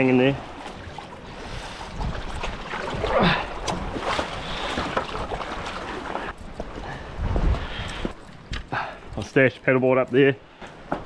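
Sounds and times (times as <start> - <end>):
water sloshing over rock ledge: 0.0 - 8.6.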